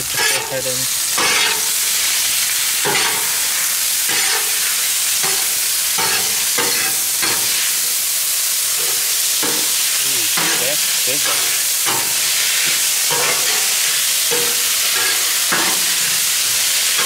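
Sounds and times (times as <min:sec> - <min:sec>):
food sizzling on a griddle: 0:00.0 - 0:17.0
metal spatula scraping: 0:00.1 - 0:00.6, 0:01.2 - 0:01.8, 0:04.1 - 0:07.7, 0:11.2 - 0:17.0.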